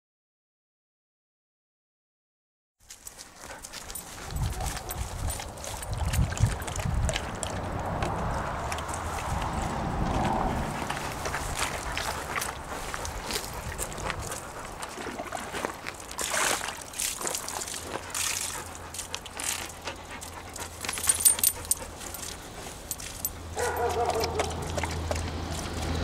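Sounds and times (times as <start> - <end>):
metallic clinks: 3.0 - 6.7, 20.6 - 24.4
dog lapping and splashing water: 3.0 - 26.0.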